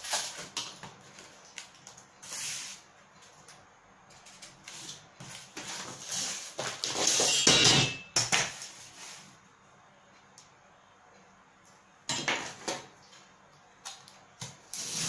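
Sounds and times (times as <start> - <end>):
cardboard sliding and scraping: 14.7 - 15.0.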